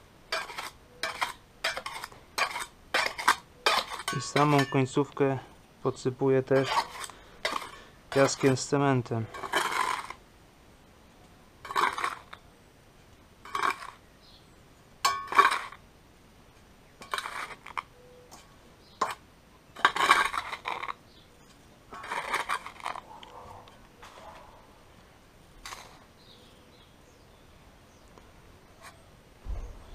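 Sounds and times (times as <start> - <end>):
trowel scraping sand-cement: 0.3 - 4.9, 6.4 - 10.2, 11.6 - 12.4, 13.4 - 14.0, 15.2 - 15.8, 17.0 - 17.9, 19.8 - 21.0, 21.6 - 23.1, 25.6 - 26.1.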